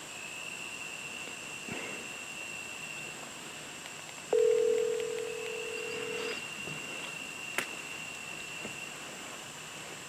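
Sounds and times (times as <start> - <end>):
telephone ringing tone: 4.3 - 6.4.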